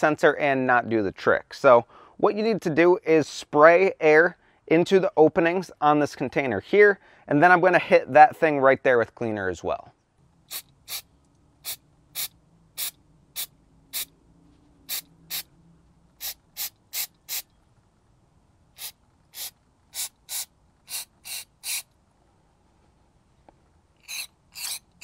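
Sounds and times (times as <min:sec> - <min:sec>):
aerosol can spritzing: 0:10.5 - 0:11.0, 0:11.6 - 0:14.1, 0:14.9 - 0:15.4, 0:16.2 - 0:17.4, 0:18.8 - 0:21.9, 0:24.0 - 0:24.8.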